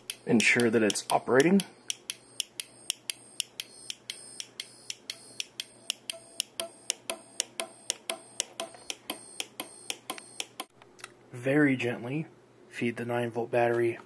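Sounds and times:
relay clicking: 0.0 - 10.7.

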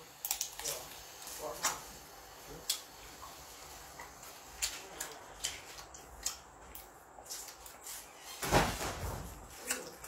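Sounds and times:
wet eating smacks and clicks: 4.0 - 7.7, 9.6 - 10.0.

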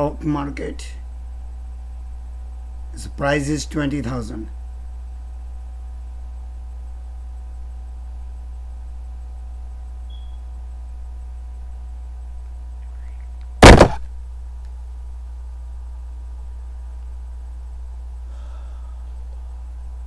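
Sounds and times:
low electrical hum: 0.0 - 20.0
loud short knock: 13.6 - 14.0.

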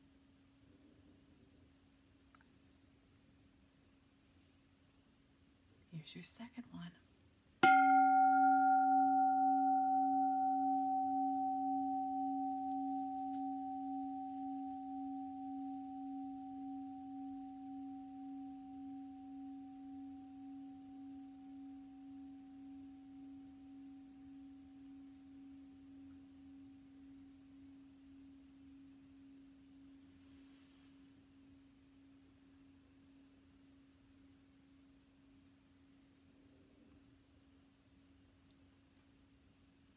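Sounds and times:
singing bowl ringing: 7.6 - 30.6.

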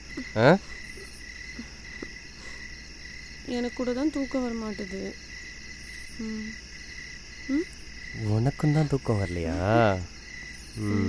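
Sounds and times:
crickets chirring: 0.0 - 11.0
person murmuring: 10.8 - 11.0.

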